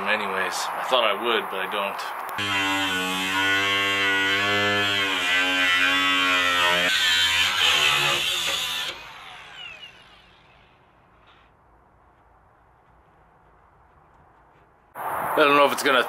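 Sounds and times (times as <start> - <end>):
angle grinder cutting steel: 2.4 - 11.5.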